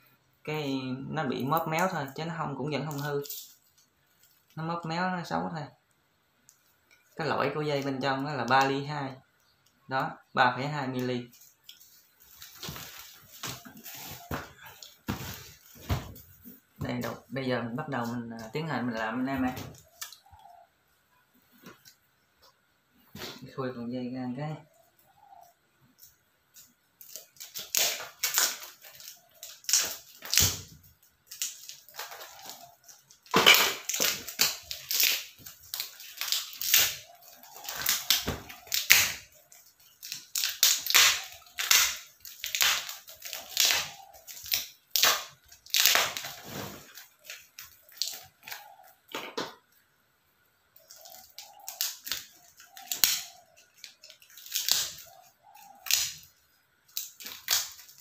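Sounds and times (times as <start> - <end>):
plastic wrapping being torn off: 11.4 - 16.3, 27.0 - 48.8, 50.8 - 56.3, 56.9 - 58.0.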